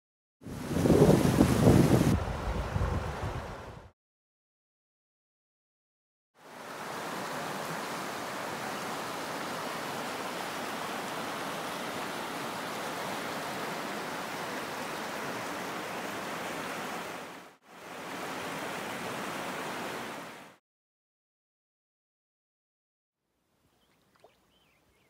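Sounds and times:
river rapids roaring: 6.5s - 20.4s.

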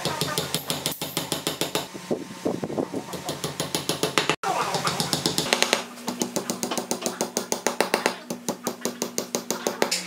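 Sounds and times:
hammer tapping wooden pins: 3.3s - 10.0s.

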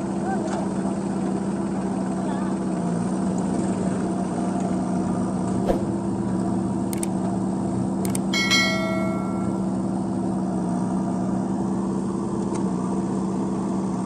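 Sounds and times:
diesel engines running: 0.0s - 14.0s
dull thump: 5.6s - 6.0s
sharp clicks: 6.9s - 7.2s, 8.0s - 8.3s
bright bell chime: 8.4s - 9.8s.

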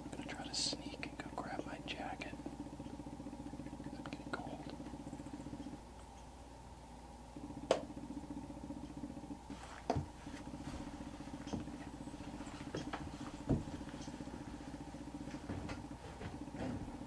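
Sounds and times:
steady motor-like hum: 0.0s - 17.0s
knocking on wooden decking: 12.8s - 13.8s.

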